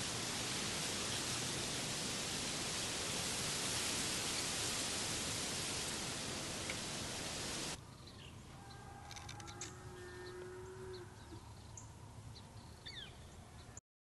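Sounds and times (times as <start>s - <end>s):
wind hissing: 0.0s - 7.8s
distant cow mooing: 8.6s - 11.4s.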